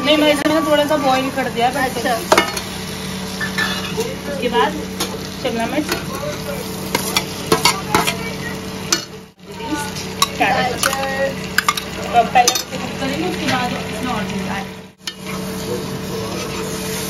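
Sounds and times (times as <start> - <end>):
vegetables sizzling in a pan: 0.0 - 17.0
metal spoon clinking and scraping: 10.2 - 12.8.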